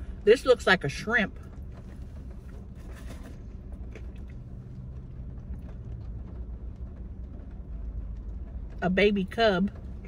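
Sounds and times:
car cabin rumble: 0.0s - 10.0s
faint taps and rustles: 1.3s - 8.8s.

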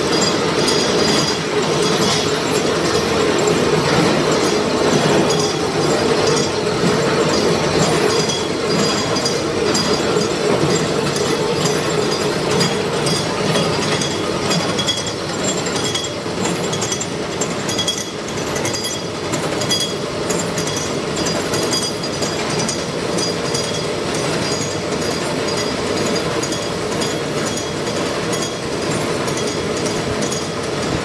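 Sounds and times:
milling machine cutting metal: 0.0s - 16.3s.

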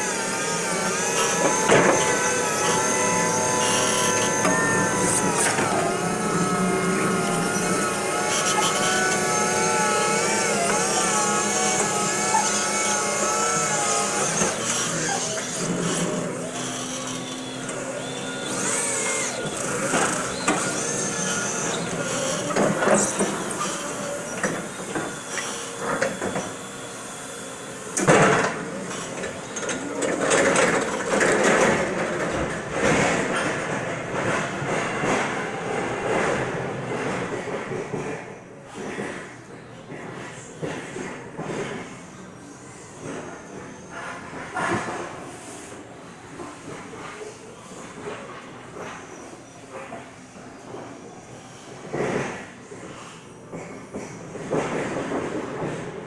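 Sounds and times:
lift motor humming: 0.0s - 37.4s.

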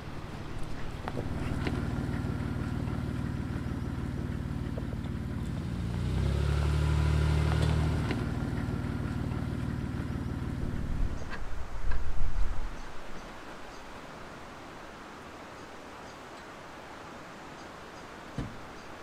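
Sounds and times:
car engine running: 0.0s - 11.6s.

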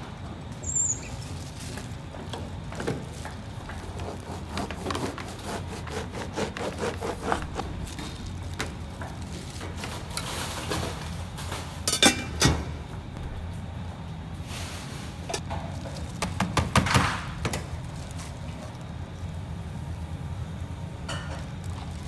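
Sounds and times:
plastic glove rustling: 1.1s - 11.2s, 17.3s - 19.8s, 21.4s - 22.0s
steady low hum: 1.3s - 16.2s.

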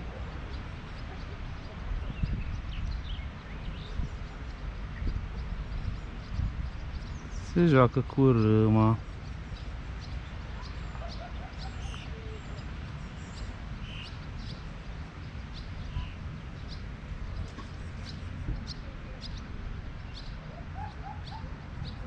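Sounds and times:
small birds chirping: 0.0s - 22.0s
steady low rumble: 0.0s - 22.0s.

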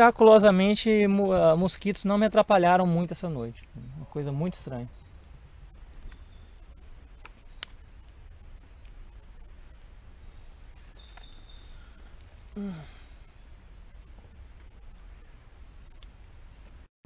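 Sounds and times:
night insects chirping: 0.0s - 16.9s
low voice sigh: 11.8s - 13.2s
faint clicks: 15.9s - 16.2s.

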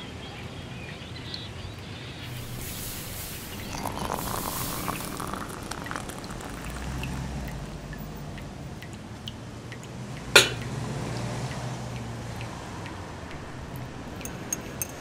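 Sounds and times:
coffee pot clanking on metal grate: 10.4s - 10.7s, 13.7s - 15.0s.

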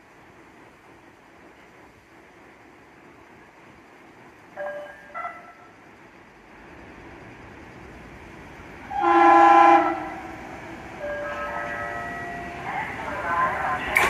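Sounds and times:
electric train rumble: 0.0s - 14.0s
train horn blast: 8.9s - 10.4s.

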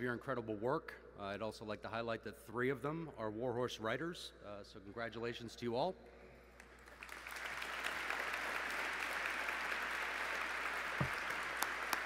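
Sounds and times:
sharp near claps: 6.6s - 12.0s
audience applauding: 6.8s - 12.0s.

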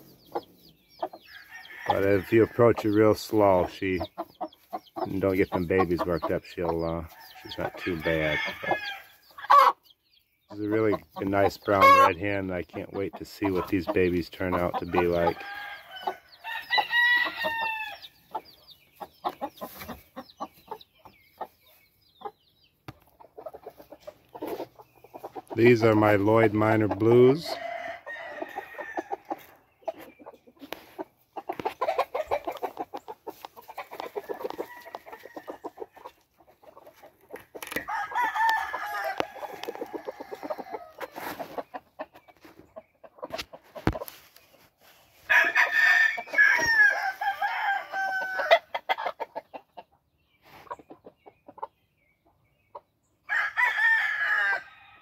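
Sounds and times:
chickens clucking: 0.0s - 54.1s
rooster crowing: 7.4s - 9.1s, 15.3s - 18.0s, 27.6s - 29.2s, 37.8s - 41.0s, 45.3s - 48.6s, 53.3s - 55.0s.

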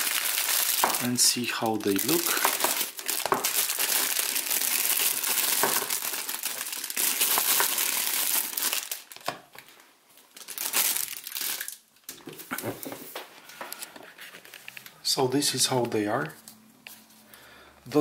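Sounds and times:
plastic bag crinkling: 0.0s - 12.6s.

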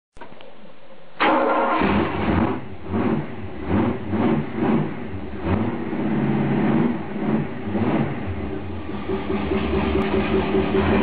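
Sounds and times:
engine revving: 1.2s - 11.0s.

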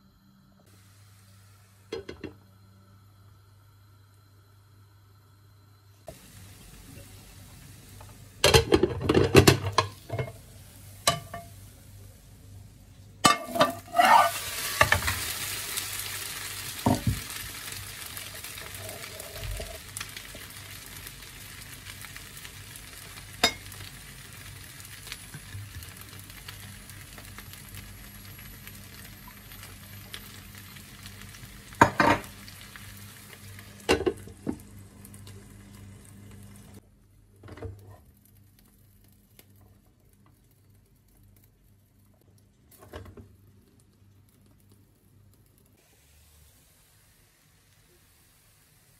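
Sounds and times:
vegetables sizzling in frying pan: 0.7s - 4.6s, 6.0s - 36.8s, 45.7s - 48.9s
pan and utensils clattering: 8.4s - 10.4s, 11.0s - 11.6s, 13.2s - 15.3s
glass lid clanking: 13.2s - 14.3s.

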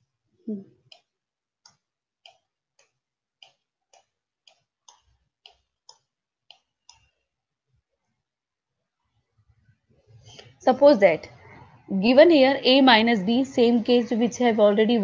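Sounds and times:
computer mouse clicking: 0.8s - 7.2s.

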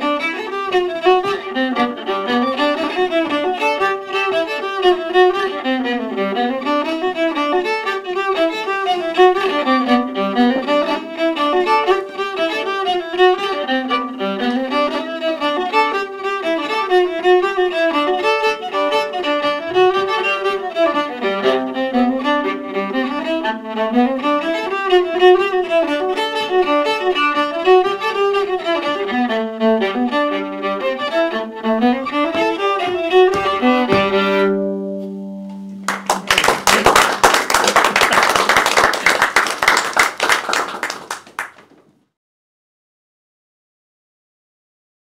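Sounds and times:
solo viola folk tune: 0.0s - 36.2s
audience applauding: 35.8s - 41.8s.

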